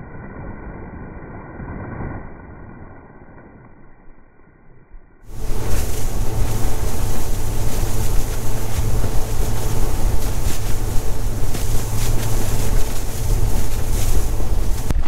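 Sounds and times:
outboard engine droning: 5.2s - 15.0s
wind noise on microphone: 5.2s - 15.0s.

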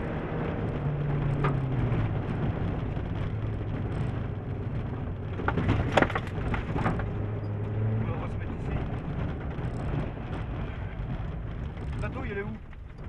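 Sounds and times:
car engine running: 0.0s - 13.0s
tyre and road noise: 0.0s - 13.0s
gravel stones striking car underbody: 5.4s - 7.1s.

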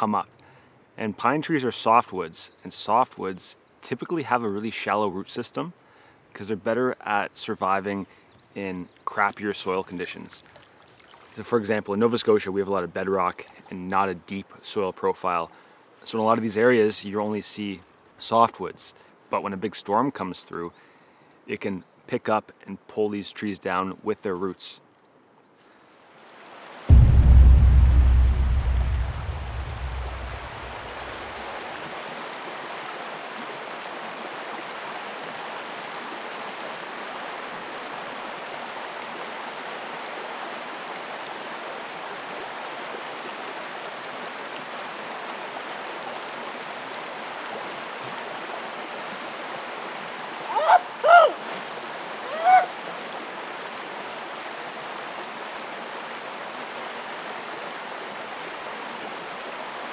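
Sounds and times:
river water running over rocks: 9.2s - 14.4s, 26.0s - 59.9s.

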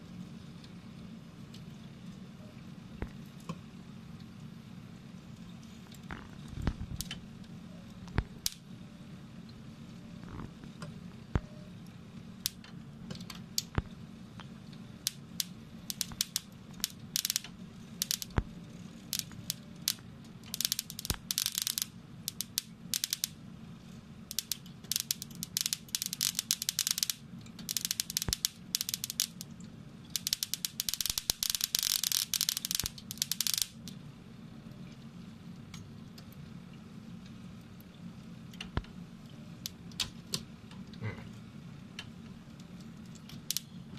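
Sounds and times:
steady low hum: 0.0s - 43.9s
molten metal spattering and crackling: 5.9s - 8.6s, 12.4s - 23.4s, 24.3s - 34.0s.

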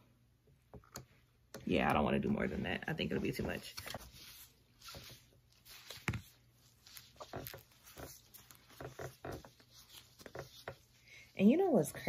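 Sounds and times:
soft rustles of wig hair: 1.7s - 12.0s.

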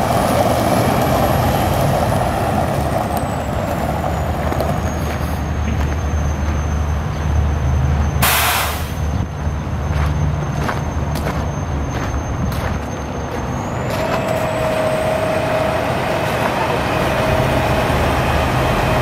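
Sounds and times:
diesel truck engine running: 0.0s - 19.0s
air brakes hissing: 8.1s - 9.2s.

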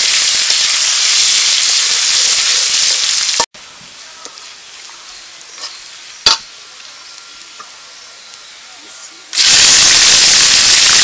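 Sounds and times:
onions sizzling in hot oil: 0.0s - 8.7s, 9.3s - 11.0s
spatula scraping a wok: 5.5s - 6.0s.

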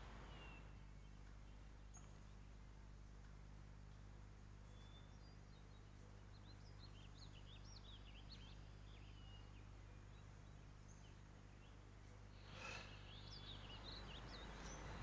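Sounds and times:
low steady hum: 0.0s - 15.0s
small birds chirping: 0.0s - 15.0s.

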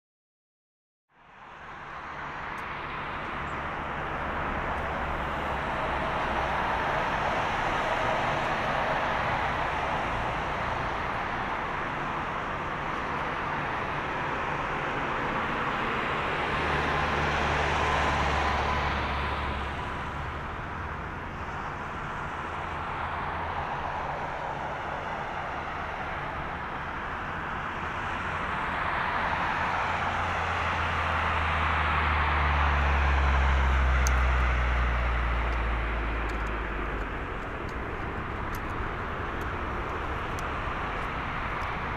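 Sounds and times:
jet engines rushing: 21.6s - 41.9s.

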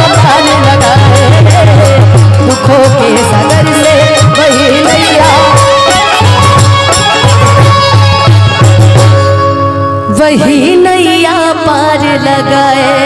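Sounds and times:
drum strokes: 0.0s - 9.6s
wavering melody: 0.0s - 13.0s.

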